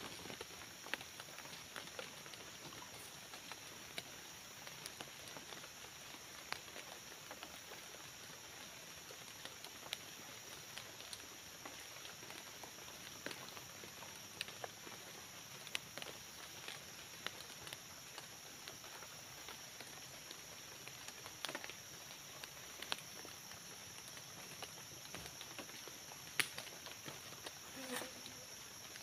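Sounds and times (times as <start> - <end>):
steady high hiss: 0.0 - 29.0
twigs and dry leaves snapping: 26.3 - 27.6.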